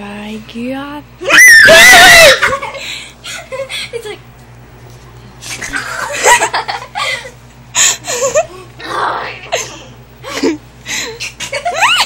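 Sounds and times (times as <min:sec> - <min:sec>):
girls laughing and squealing: 0:01.2 - 0:04.2, 0:11.2 - 0:12.0.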